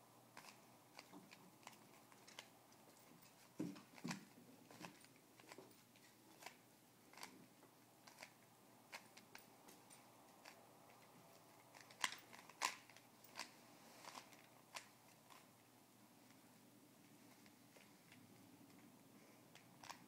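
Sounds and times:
puzzle cube layers clicking: 0:08.0 - 0:09.4.

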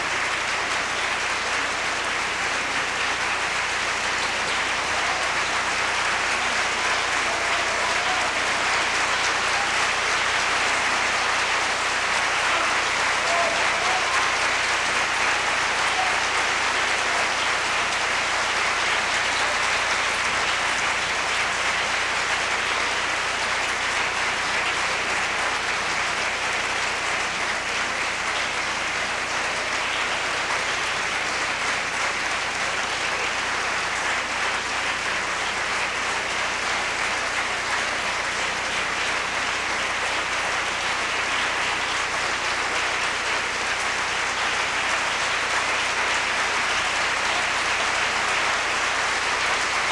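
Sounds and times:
audience applauding: 0:00.0 - 0:49.9.

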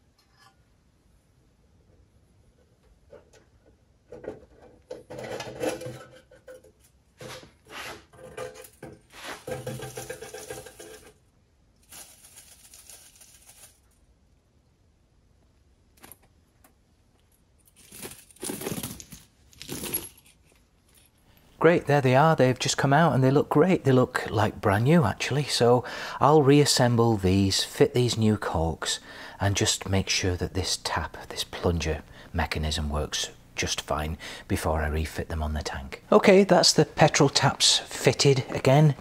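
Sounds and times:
metal parts rattling in wire basket: 0:09.4 - 0:11.2, 0:11.9 - 0:13.8.

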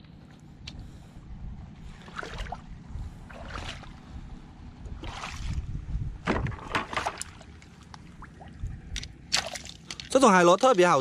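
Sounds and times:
low steady rumble: 0:00.0 - 0:10.4
shallow seawater splashing: 0:01.9 - 0:04.0, 0:05.0 - 0:05.7.

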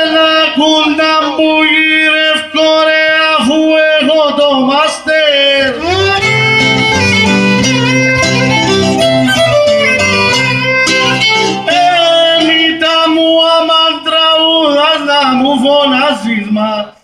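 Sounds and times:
plucked string accompaniment: 0:05.7 - 0:12.5
violin folk tune: 0:05.7 - 0:12.5.

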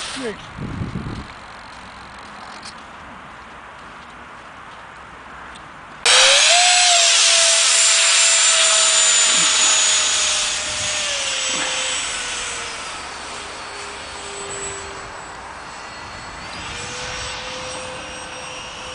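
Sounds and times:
model jet motor whine: 0:00.0 - 0:00.4, 0:06.1 - 0:18.9.

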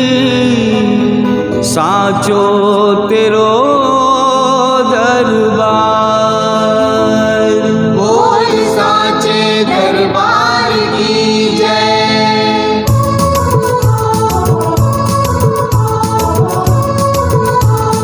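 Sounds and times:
devotional singing: 0:00.0 - 0:18.0
sustained backing chords: 0:05.3 - 0:18.0.

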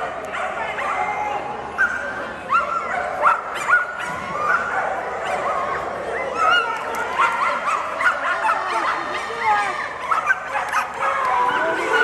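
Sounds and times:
many dogs yipping and whining: 0:00.3 - 0:12.0.

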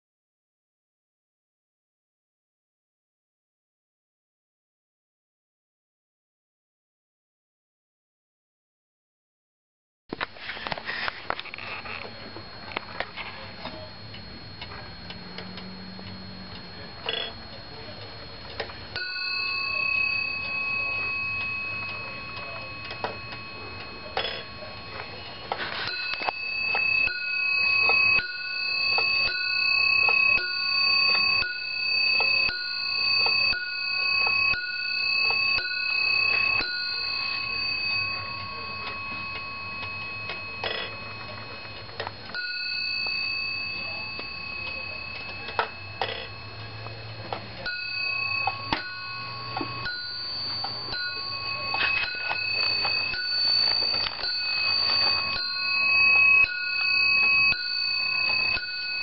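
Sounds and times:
clock bell striking: 0:12.2 - 0:59.0
clock ticking: 0:13.6 - 0:59.0.

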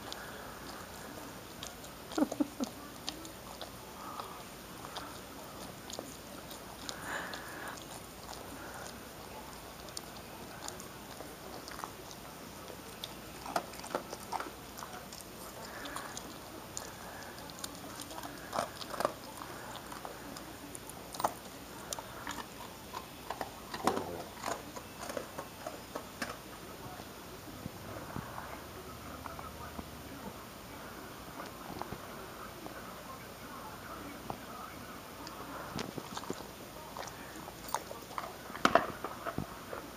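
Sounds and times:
dog crunching biscuits: 0:00.0 - 0:27.1, 0:35.2 - 0:39.9.

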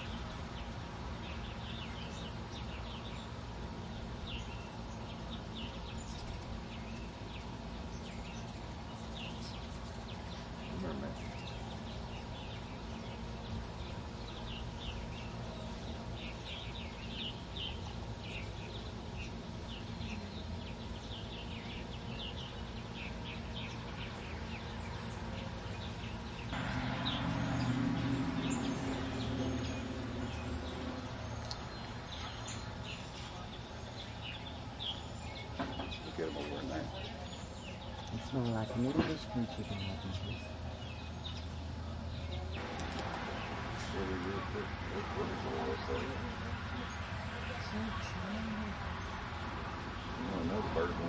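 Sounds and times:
hummingbirds chirping: 0:00.0 - 0:51.0
steady low hum: 0:00.0 - 0:51.0
low drone with rushing noise: 0:23.4 - 0:34.6, 0:42.5 - 0:51.0.

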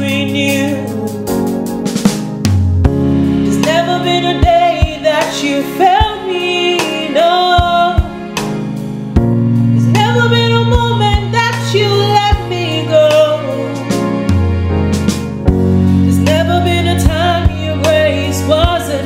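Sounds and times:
woman singing gospel song: 0:00.0 - 0:01.4, 0:03.5 - 0:08.2, 0:09.8 - 0:13.9, 0:16.1 - 0:19.0
drum beats: 0:00.0 - 0:19.0
sustained low chords: 0:13.7 - 0:17.8.

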